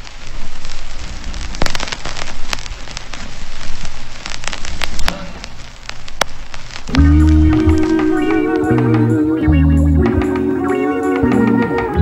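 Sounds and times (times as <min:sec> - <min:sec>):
rain-like hiss: 0:00.0 - 0:12.0
sharp pops: 0:00.0 - 0:12.0
low hum: 0:06.9 - 0:10.6.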